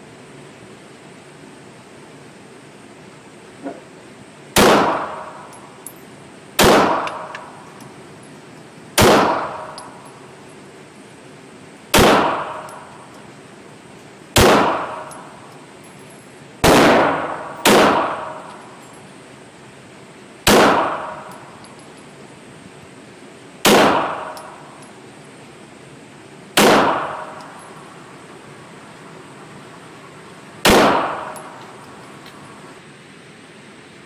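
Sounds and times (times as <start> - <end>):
handgun shots echoing indoors: 6.6 - 7.5, 9.0 - 10.0, 12.0 - 12.9, 14.4 - 15.2, 16.6 - 18.6, 20.5 - 21.4, 23.7 - 24.6, 26.6 - 27.6, 30.6 - 31.6.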